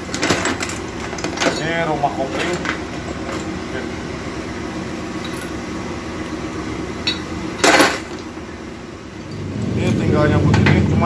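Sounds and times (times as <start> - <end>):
steady low hum: 0.0 - 11.0
loud metallic clank with ring: 7.0 - 8.2.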